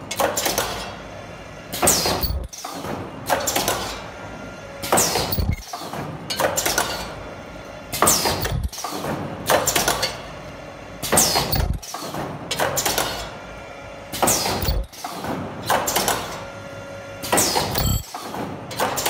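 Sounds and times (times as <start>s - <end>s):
pneumatic cylinders clattering: 1.7s - 4.0s, 4.8s - 7.1s, 7.9s - 10.2s, 11.0s - 13.3s, 14.2s - 16.4s, 17.2s - 19.0s
light machine clicks: 1.8s - 2.8s, 4.9s - 5.7s, 8.1s - 10.1s, 11.2s - 13.2s, 14.2s - 15.1s, 17.4s - 18.1s.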